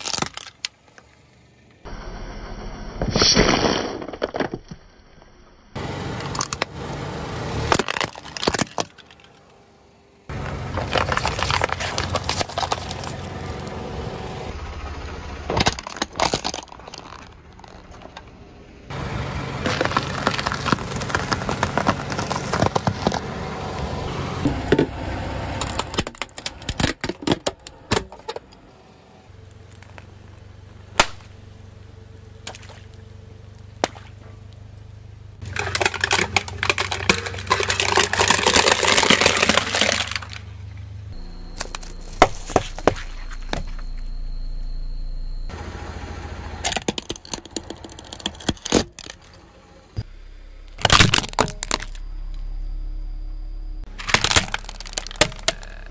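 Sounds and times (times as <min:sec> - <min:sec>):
drink cans crunching: 0:00.0 - 0:00.8, 0:07.8 - 0:09.4, 0:10.3 - 0:13.3, 0:15.6 - 0:18.2, 0:19.6 - 0:23.2, 0:35.4 - 0:40.5, 0:50.9 - 0:52.0, 0:53.9 - 0:55.9
light bulbs cracking and popping: 0:00.0 - 0:01.1, 0:35.4 - 0:40.5, 0:50.8 - 0:52.0, 0:53.9 - 0:55.9
car engine humming: 0:00.0 - 0:02.1, 0:05.8 - 0:55.9.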